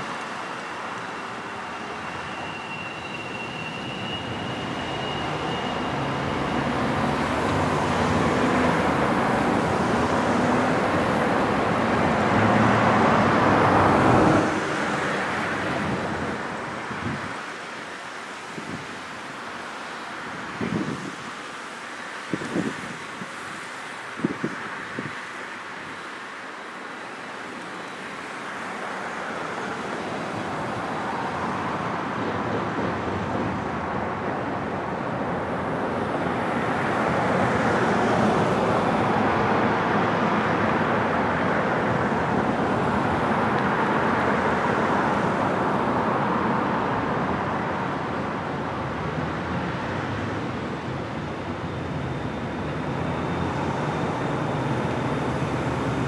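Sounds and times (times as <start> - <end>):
faint high whine: 0.0 - 7.0
road traffic passing: 0.0 - 56.0.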